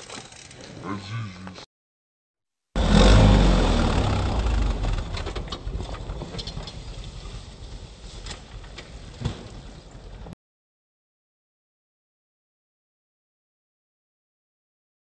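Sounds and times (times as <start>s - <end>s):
quad bike engine: 2.8s - 6.7s.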